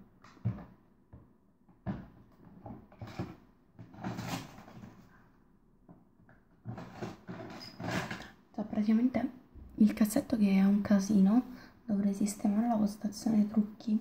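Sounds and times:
things knocking and rattling in drawer: 1.8 - 5.0, 6.6 - 8.3.

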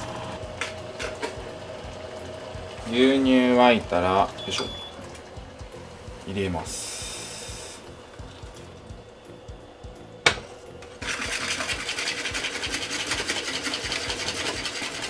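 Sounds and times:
whisk beating against a bowl: 11.0 - 15.0.

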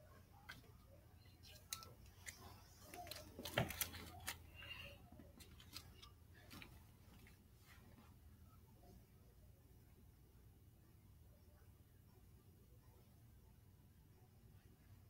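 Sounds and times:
faint clicks and rustles: 0.2 - 8.4.

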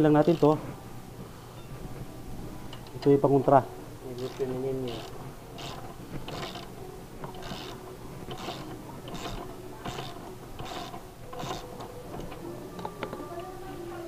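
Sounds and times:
socket ratchet clicking: 4.2 - 6.7, 7.3 - 11.9.

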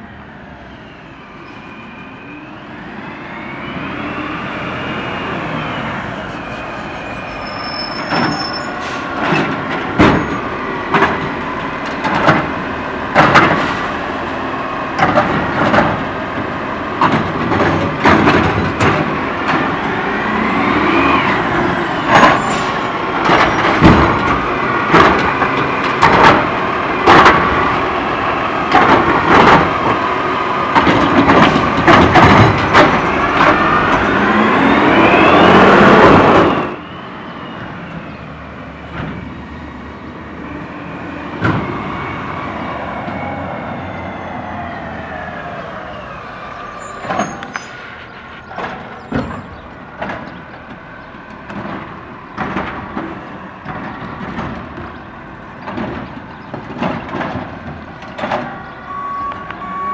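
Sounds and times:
rising and falling whine: 0.8 - 7.6, 33.1 - 38.1.

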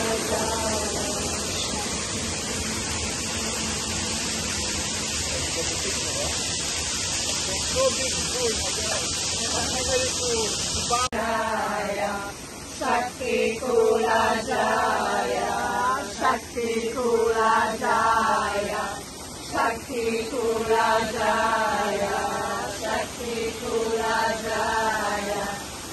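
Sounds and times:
group of voices chanting: 0.0 - 2.0, 11.0 - 25.6
falling water rushing: 0.0 - 25.9.

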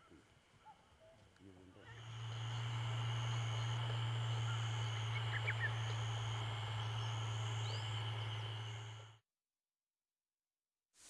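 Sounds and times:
low hum: 1.8 - 9.2
high-pitched insect chirring: 1.9 - 9.1
bird chirps: 1.9 - 9.2.

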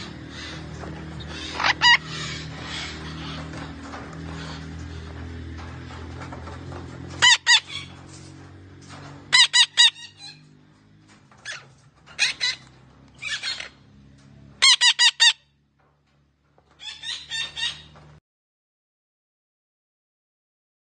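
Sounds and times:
parrot squawking: 0.0 - 4.7, 7.2 - 8.0, 9.3 - 10.5, 12.2 - 12.6, 13.2 - 13.8, 14.6 - 15.5, 16.8 - 18.0.

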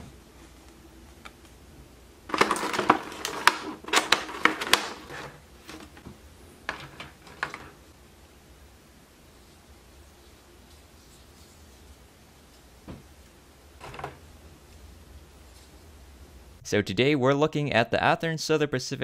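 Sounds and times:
plastic packaging crinkling: 2.3 - 7.8.

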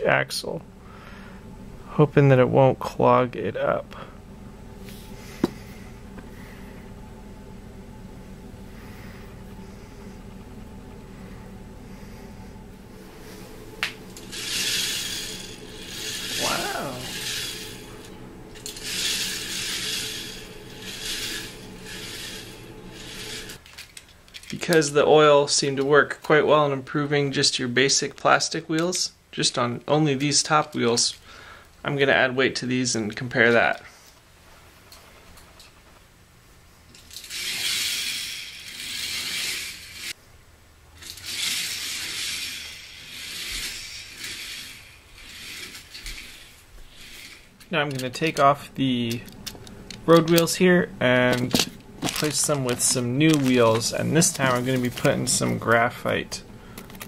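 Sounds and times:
toy coaster car rolling on track: 14.2 - 24.6, 36.9 - 40.2, 41.0 - 55.9
plastic wheels rattling on track: 41.0 - 50.6, 51.2 - 55.9.

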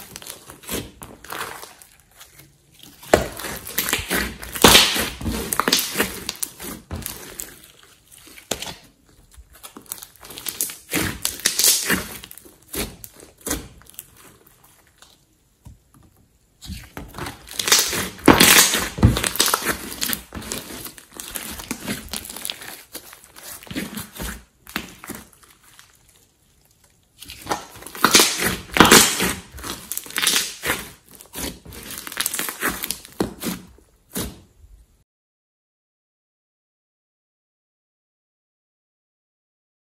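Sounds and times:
slime squelching and crackling: 0.0 - 15.4, 16.6 - 34.5.

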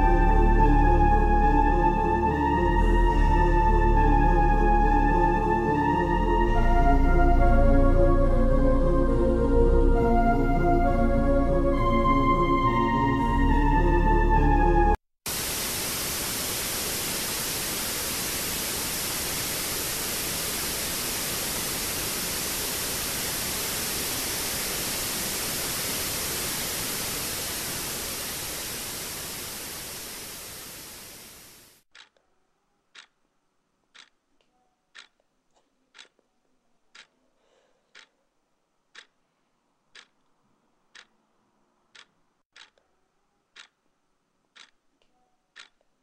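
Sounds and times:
music: 0.0 - 15.0
static hiss: 15.3 - 31.8
faint ticks: 32.0 - 32.2, 33.0 - 33.2, 33.9 - 36.3, 36.9 - 37.2, 37.9 - 38.2, 38.9 - 39.2, 39.9 - 40.2, 41.0 - 41.2, 42.0 - 42.9, 44.6 - 45.9.

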